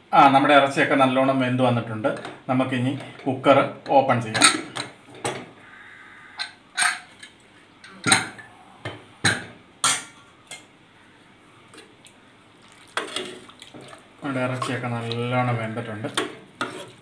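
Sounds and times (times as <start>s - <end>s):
metal ladle stirring in pot: 12.8s - 15.3s, 16.0s - 17.0s.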